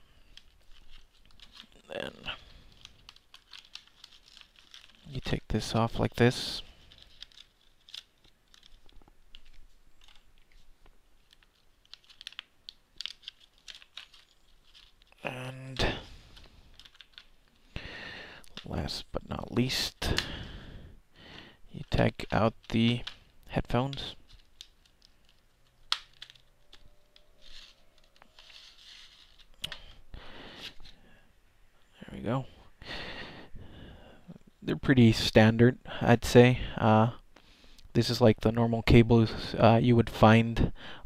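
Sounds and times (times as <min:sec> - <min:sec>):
plastic packaging rustling: 0:00.2 - 0:05.8, 0:06.6 - 0:15.2, 0:16.1 - 0:17.7, 0:21.9 - 0:29.9
plastic tray clicks and crackles: 0:23.9 - 0:27.3.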